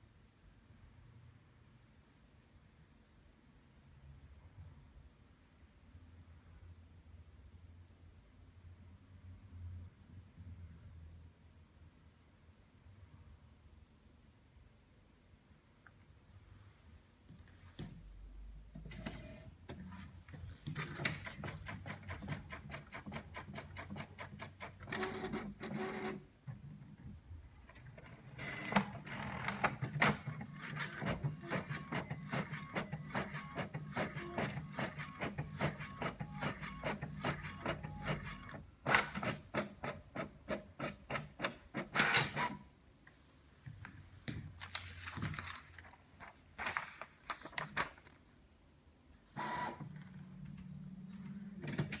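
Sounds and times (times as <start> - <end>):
printer clicks and whirs: 18.7 - 27.0, 27.7 - 42.6, 49.4 - 52.0.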